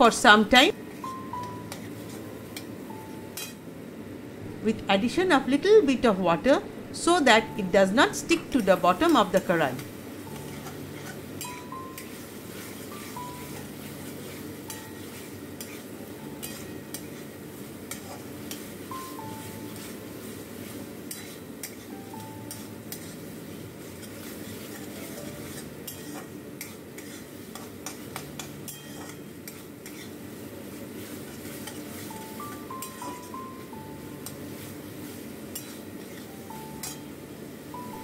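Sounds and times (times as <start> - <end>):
frying sizzle: 0.0 - 38.0
metal spatula scraping a pan: 10.3 - 18.6, 21.1 - 21.9, 22.5 - 30.2, 35.5 - 37.1.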